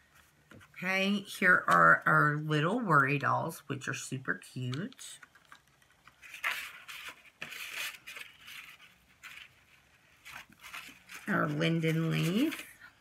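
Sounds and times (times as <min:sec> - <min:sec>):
paper and packaging rustling: 0:04.9 - 0:13.0.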